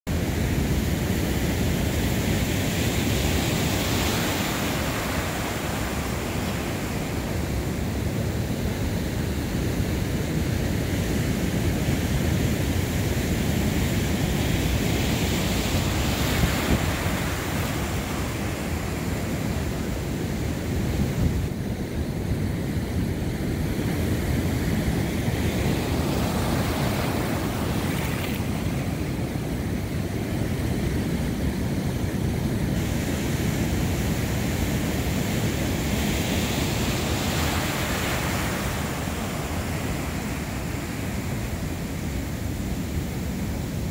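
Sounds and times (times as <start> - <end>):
wind buffeting microphone: 11.2 - 41.8
surf breaking on beach: 23.5 - 30.3, 31.8 - 43.8.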